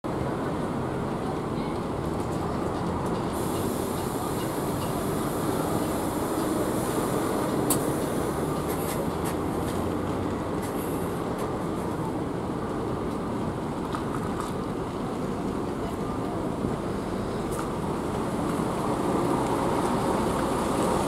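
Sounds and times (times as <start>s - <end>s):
bus diesel engine idling: 0.1s - 13.7s.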